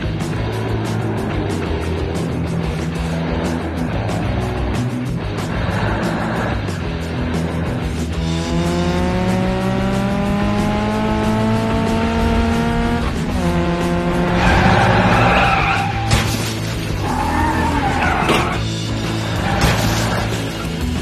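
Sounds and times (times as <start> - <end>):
background music: 0.0 - 21.0
cartoon car engine revving: 0.0 - 21.0
tyres screeching: 14.1 - 21.0.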